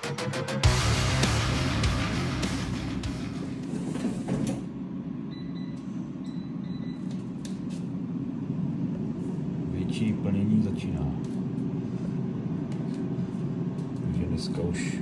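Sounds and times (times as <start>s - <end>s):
heavy guitar music: 0.0s - 3.6s
steady low hum: 0.0s - 15.0s.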